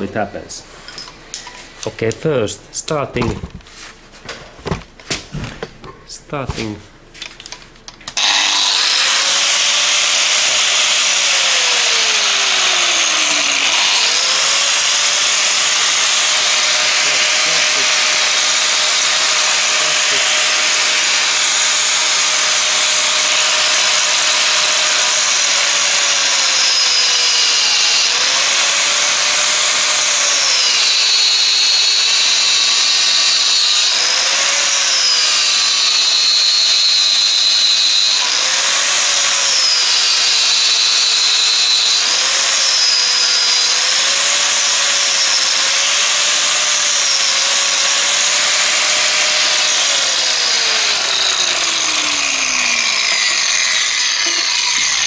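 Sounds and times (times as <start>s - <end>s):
angle grinder cutting hose: 8.1s - 55.0s.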